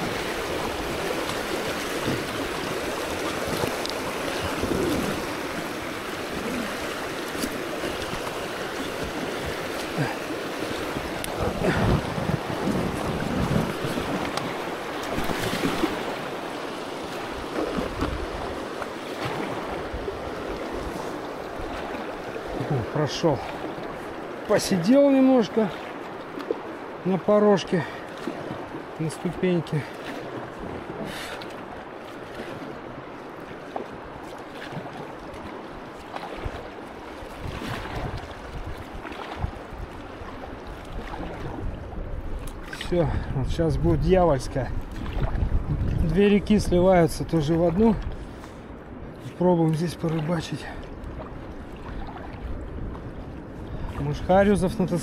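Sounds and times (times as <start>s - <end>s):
wind buffeting microphone: 0.0s - 24.4s, 36.2s - 49.2s
paddle in water: 0.0s - 55.0s
river water rushing and splashing: 0.0s - 55.0s.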